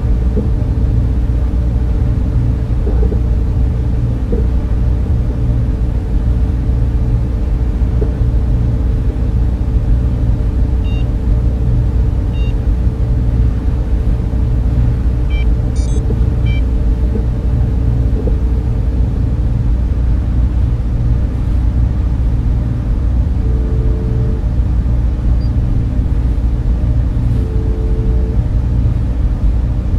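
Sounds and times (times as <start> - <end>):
low machinery rumble and hum: 0.0 - 29.9
short electronic blips: 15.3 - 16.6.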